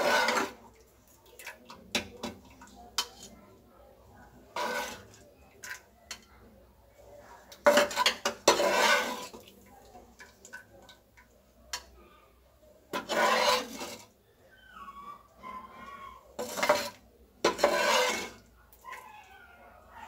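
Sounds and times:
metal spoon scraping a pan: 0.0 - 0.8, 1.4 - 3.6, 4.4 - 6.3, 7.2 - 9.6, 11.7 - 12.0, 12.8 - 14.2, 15.7 - 18.6.

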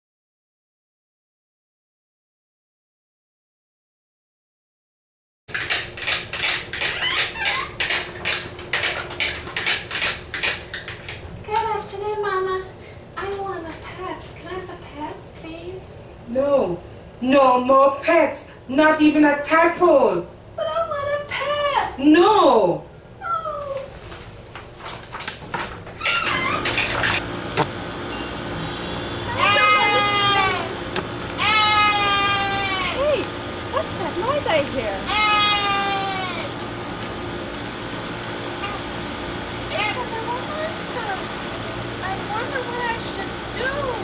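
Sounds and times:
utensil beating in bowl: 5.5 - 11.2.

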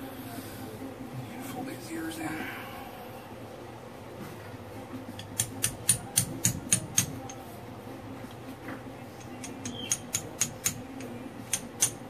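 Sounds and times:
hammer tapping metal: 5.2 - 7.4, 9.2 - 12.0.

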